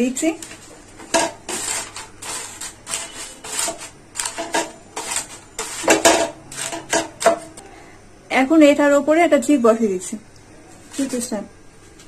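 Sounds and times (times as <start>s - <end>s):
spatula scraping a metal pot: 1.1s - 7.1s
paper rustling and crinkling: 10.8s - 11.4s.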